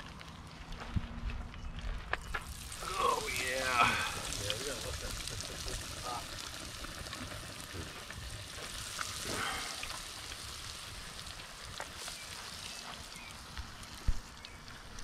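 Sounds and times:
fish deep-frying in oil: 2.2s - 15.0s.

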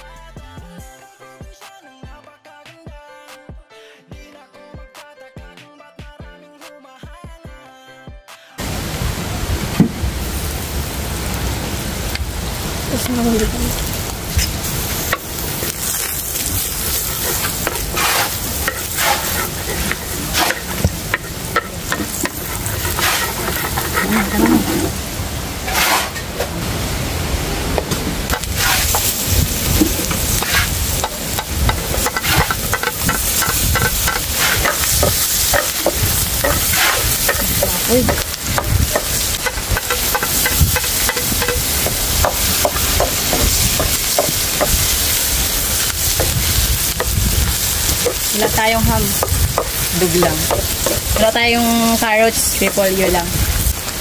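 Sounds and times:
food sizzling in a pan: 8.6s - 54.0s
utensil scraping a pan: 14.4s - 26.5s, 28.3s - 53.3s.

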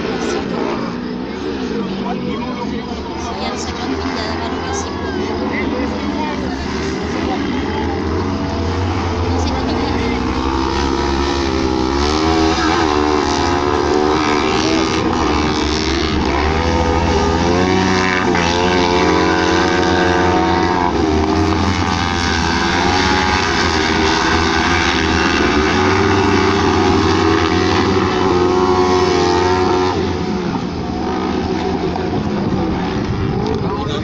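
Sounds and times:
buggy engines racing: 0.0s - 34.0s.

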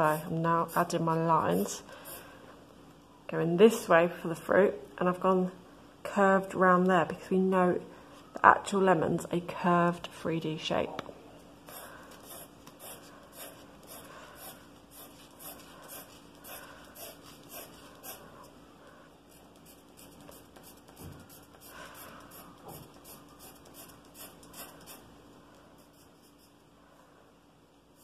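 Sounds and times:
pencil scratching on paper: 11.7s - 18.3s, 19.3s - 25.1s, 25.8s - 26.6s.

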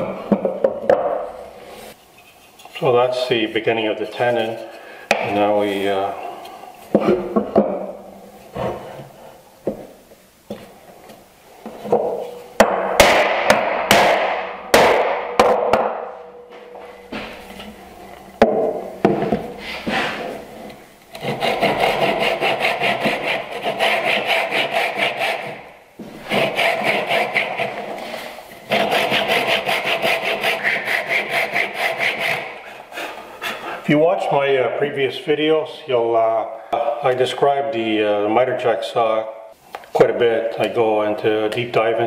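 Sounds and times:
tools knocking on wooden bench: 0.3s - 1.2s, 18.4s - 19.5s
hand saw cutting wood: 21.1s - 25.6s, 26.2s - 28.1s, 28.7s - 32.8s.

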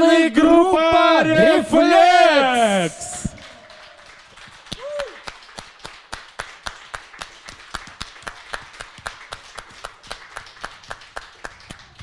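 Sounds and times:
hands clapping: 3.0s - 12.0s.

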